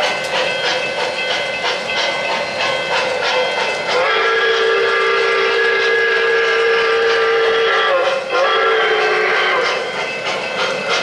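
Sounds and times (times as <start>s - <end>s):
running train noise: 0.0s - 11.0s
steam chuffing: 0.0s - 11.0s
multi-tone train whistle: 3.2s - 10.0s.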